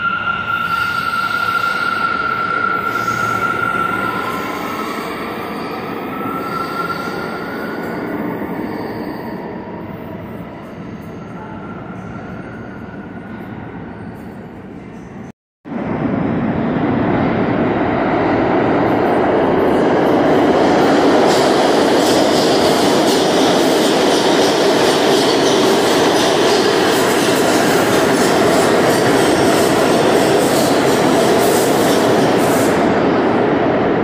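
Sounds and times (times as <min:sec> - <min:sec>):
subway train rumbling: 0:00.0 - 0:34.0.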